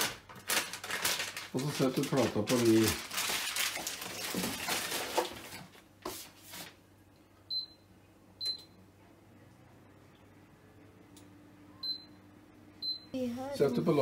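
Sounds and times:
rustling handling noise: 0:00.0 - 0:06.8
hob touch control beeps: 0:07.5 - 0:07.8, 0:08.4 - 0:08.8, 0:11.8 - 0:12.2, 0:12.8 - 0:13.1.

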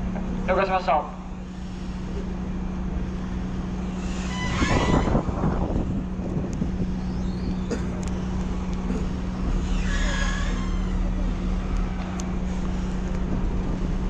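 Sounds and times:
boat diesel engine rumbling: 0:00.0 - 0:14.0
wavering squeal: 0:03.7 - 0:11.8.

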